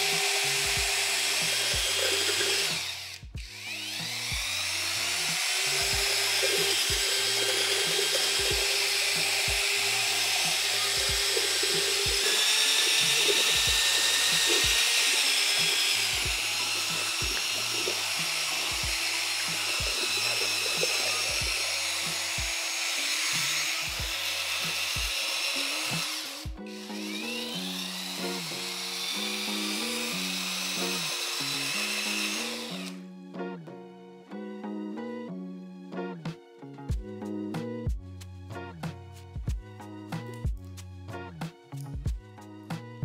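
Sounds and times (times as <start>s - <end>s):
background music with beat: 0.0s - 28.8s, 32.0s - 43.0s
paddle mixer motor whine: 0.0s - 33.0s.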